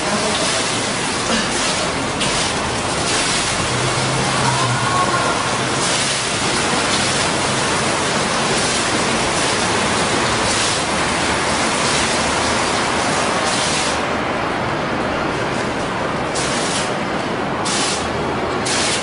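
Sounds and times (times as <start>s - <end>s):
water splashing into basin: 0.0s - 14.1s.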